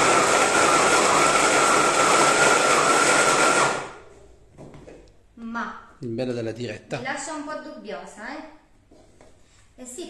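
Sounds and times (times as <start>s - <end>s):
blender motor whine: 0.0s - 4.0s.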